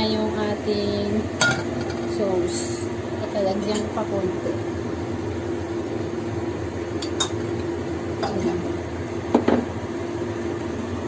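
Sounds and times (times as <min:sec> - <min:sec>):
steady background hum: 0:00.0 - 0:11.0.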